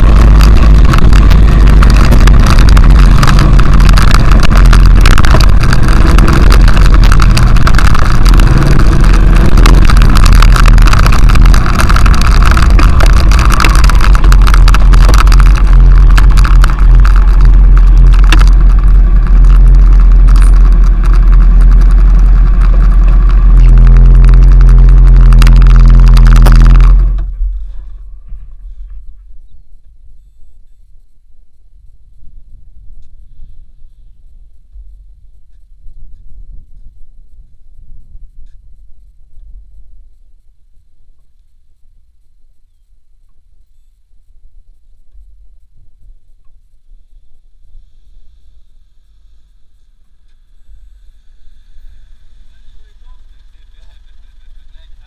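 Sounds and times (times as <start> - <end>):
wind buffeting microphone: 0.0 - 29.4
motorcycle engine running: 0.0 - 30.8.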